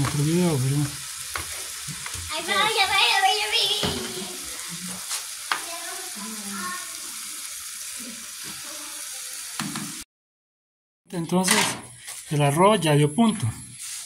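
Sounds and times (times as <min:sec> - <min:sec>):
vegetables sizzling in oil: 0:00.0 - 0:10.0, 0:13.7 - 0:14.0.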